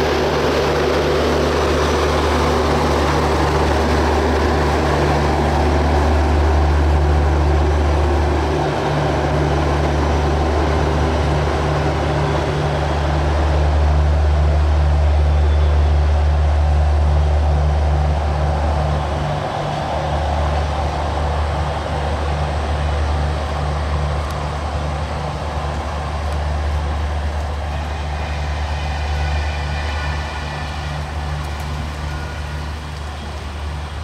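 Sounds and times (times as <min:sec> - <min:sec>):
diesel generator drone: 0:00.0 - 0:34.0
train wheels rumbling on rail: 0:00.0 - 0:34.0.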